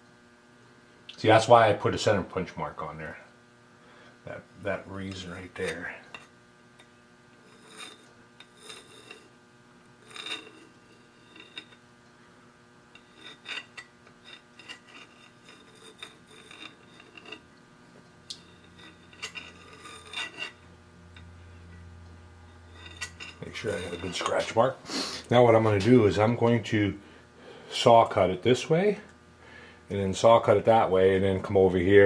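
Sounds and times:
compass point scraping metal: 0:05.0 - 0:06.4, 0:07.4 - 0:09.4, 0:10.0 - 0:11.9, 0:12.9 - 0:17.5, 0:18.3 - 0:21.4, 0:22.5 - 0:26.8.

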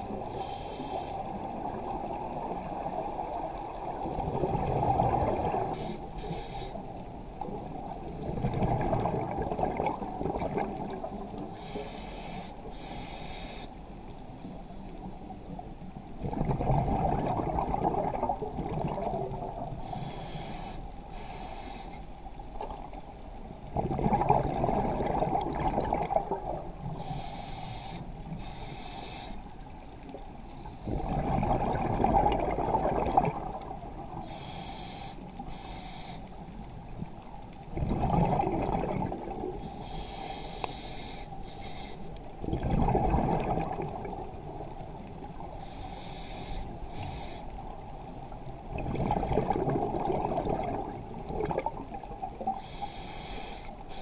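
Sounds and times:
regulator inhale hiss: 0:00.1 - 0:01.4, 0:05.7 - 0:07.0, 0:11.4 - 0:14.5, 0:19.8 - 0:22.2, 0:26.9 - 0:29.5, 0:34.2 - 0:36.4, 0:39.6 - 0:42.3, 0:45.4 - 0:47.7, 0:52.4 - 0:54.0
exhaust bubbles rushing: 0:23.7 - 0:26.6, 0:31.0 - 0:33.6, 0:37.8 - 0:39.4, 0:42.5 - 0:44.3, 0:48.7 - 0:51.9.

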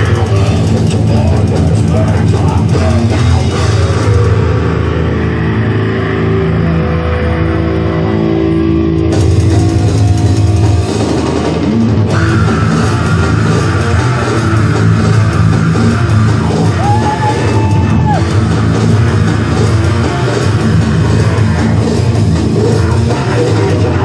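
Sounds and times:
drum kit: 0:00.0 - 0:06.1, 0:08.7 - 0:24.0
bass guitar: 0:00.0 - 0:24.0
distorted electric guitars: 0:00.0 - 0:24.0.

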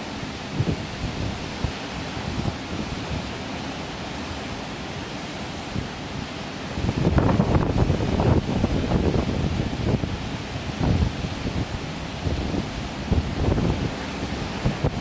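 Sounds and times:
surf breaking on rocks: 0:00.0 - 0:15.0
wind buffeting microphone: 0:00.5 - 0:03.4, 0:06.7 - 0:15.0.

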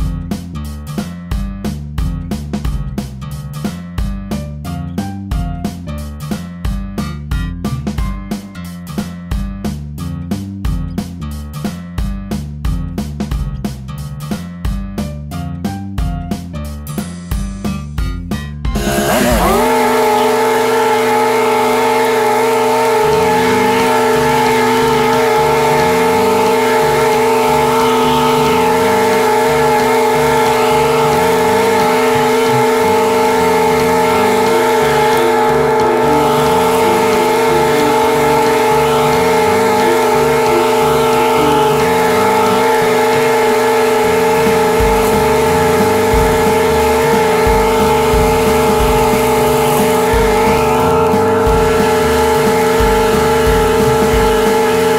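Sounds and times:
lawn mower engine running: 0:18.7 - 0:54.9.

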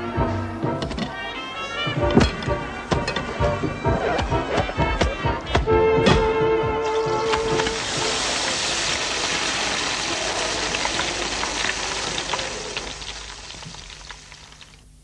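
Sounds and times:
fat crackling and popping: 0:07.1 - 0:15.0
steaks sizzling in a pan: 0:07.5 - 0:14.8.

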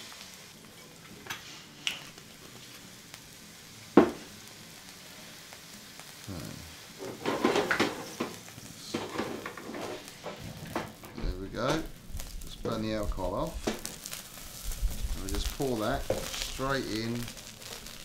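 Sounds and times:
sizzling in roasting tray: 0:00.0 - 0:18.0
metal tray scraping and clattering: 0:07.0 - 0:08.3, 0:09.0 - 0:11.2.

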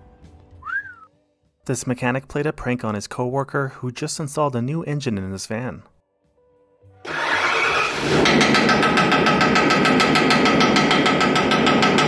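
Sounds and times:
van engine starting: 0:07.0 - 0:10.2
engine knocking clatter: 0:07.1 - 0:12.0.

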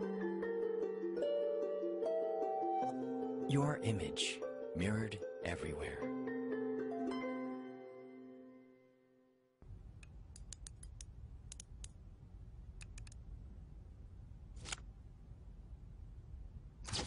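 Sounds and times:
low steady hum: 0:09.6 - 0:16.8.

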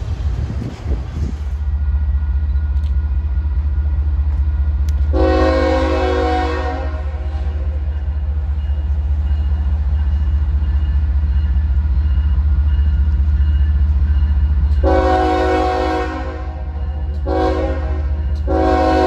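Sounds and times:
diesel locomotive rumbling: 0:00.0 - 0:19.0
train air horn blasts: 0:05.1 - 0:07.6, 0:14.8 - 0:19.0.

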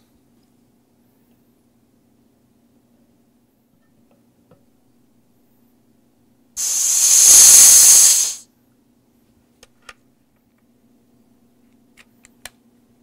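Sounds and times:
high-pressure air hissing: 0:06.6 - 0:08.4.

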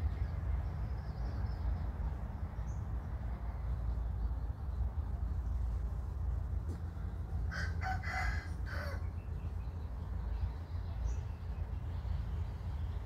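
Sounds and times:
steady low rumble: 0:00.0 - 0:13.0
rooster crowing: 0:07.5 - 0:09.1.

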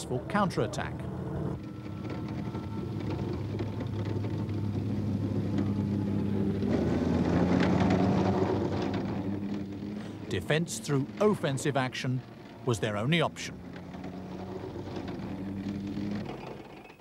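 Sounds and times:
armoured vehicle engines droning: 0:00.0 - 0:17.0.

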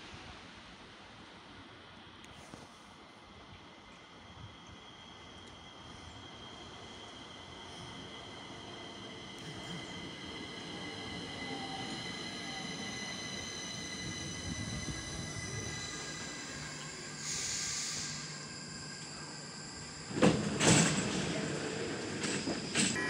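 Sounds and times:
train wheels rumbling on rails: 0:04.5 - 0:23.0
hiss: 0:12.5 - 0:23.0
train doors knocking open: 0:20.1 - 0:23.0.

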